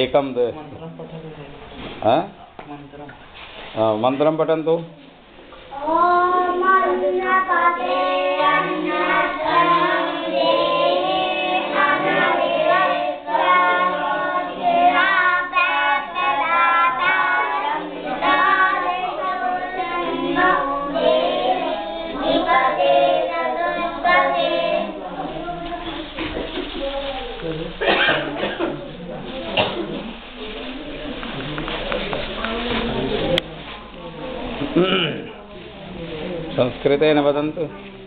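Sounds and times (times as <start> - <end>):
boys chanting together: 6.1 - 25.4.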